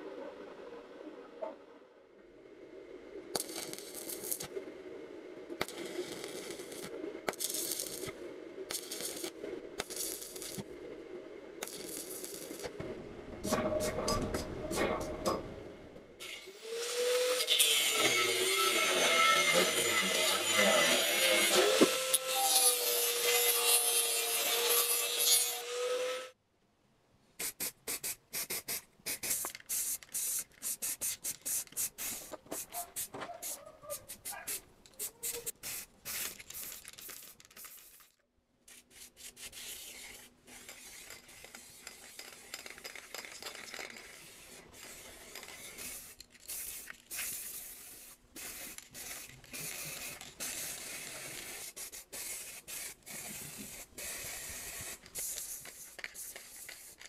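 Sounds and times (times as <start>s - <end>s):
angle grinder on steel: 16.2s - 26.4s
aerosol paint can hissing: 27.4s - 38.1s, 38.9s - 57.0s
rubbing and scraping strokes: 38.7s - 57.0s.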